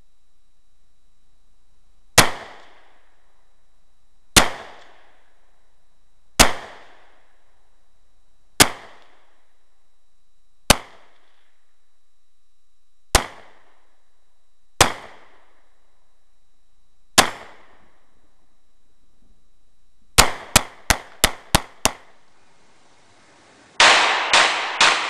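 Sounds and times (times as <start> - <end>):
pistol shots with echo: 2.2 - 2.9, 4.4 - 5.1, 6.4 - 7.1, 8.6 - 9.2, 10.7 - 11.2, 13.1 - 13.7, 14.8 - 15.4, 17.2 - 17.9, 20.2 - 22.1, 23.8 - 25.0.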